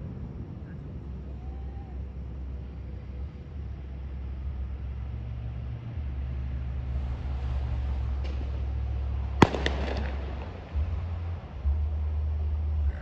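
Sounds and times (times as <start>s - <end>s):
low motor rumble: 0.0s - 13.0s
hiss: 6.8s - 10.1s
faint crack: 7.6s - 10.8s.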